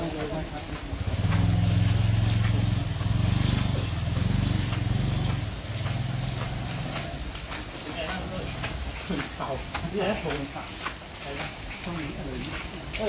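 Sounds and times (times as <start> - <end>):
motorcycle engine running: 0.0 - 7.4.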